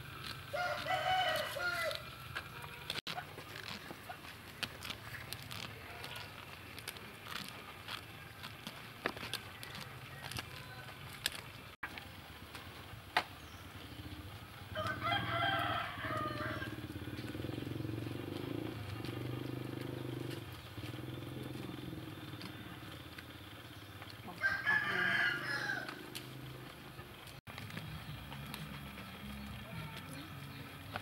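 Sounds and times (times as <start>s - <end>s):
rooster crowing: 0.5s - 2.2s, 9.2s - 11.2s, 14.7s - 17.0s, 24.2s - 26.2s
low hum: 25.3s - 31.0s.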